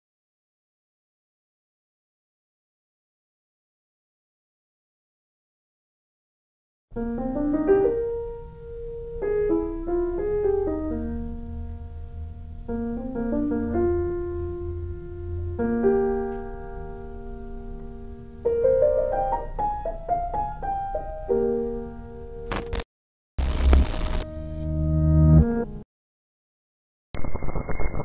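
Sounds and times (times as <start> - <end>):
solo piano music: 6.9 - 22.5, 24.3 - 25.8.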